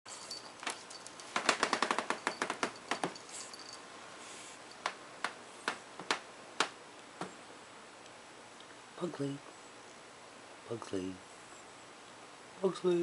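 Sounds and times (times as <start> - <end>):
dog claws clicking on wood floor: 0.6 - 3.2.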